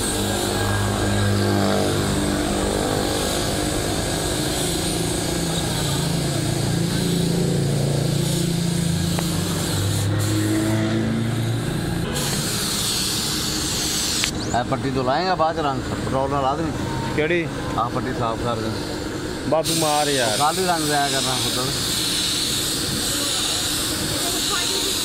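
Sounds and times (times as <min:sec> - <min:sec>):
low droning hum: 0:00.0 - 0:14.9
paint spray gun hissing: 0:03.1 - 0:14.4, 0:19.6 - 0:25.0.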